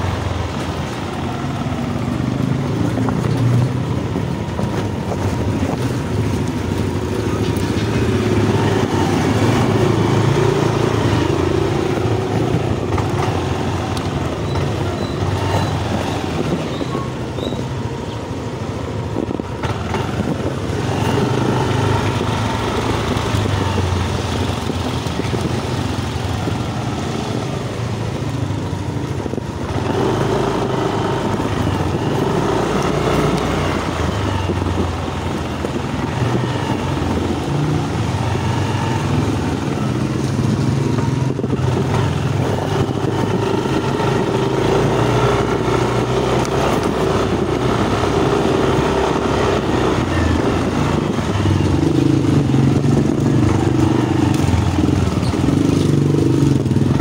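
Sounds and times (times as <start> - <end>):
road noise: 0.0 - 57.0
wind noise: 0.0 - 57.0
scooter engine running: 18.9 - 57.0.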